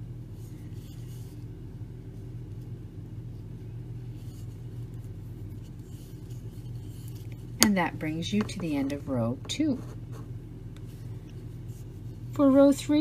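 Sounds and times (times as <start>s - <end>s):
low background hum: 0.0s - 13.0s
yarn rustling over crochet hook: 0.4s - 9.8s.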